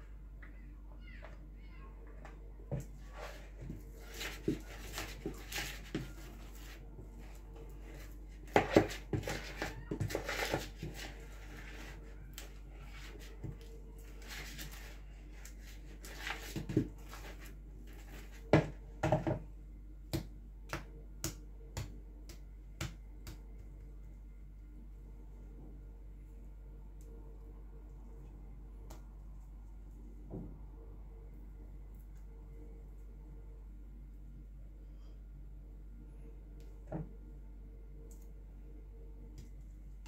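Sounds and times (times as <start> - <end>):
spatula scraping plastic bowl: 8.5 - 11.9.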